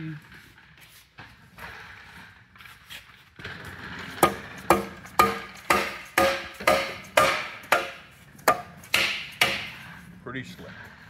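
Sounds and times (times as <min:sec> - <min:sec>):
hammer tapping metal with ringing: 0:04.2 - 0:09.8.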